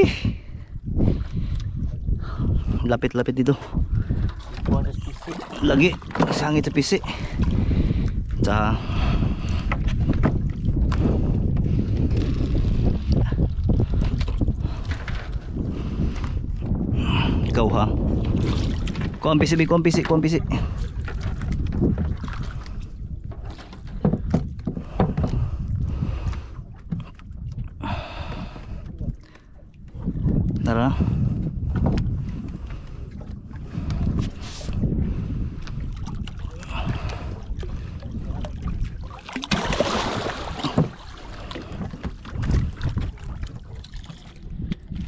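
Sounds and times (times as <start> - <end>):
water splashing against boat hull: 3.3 - 45.0
fish splashing at water surface: 39.1 - 41.3.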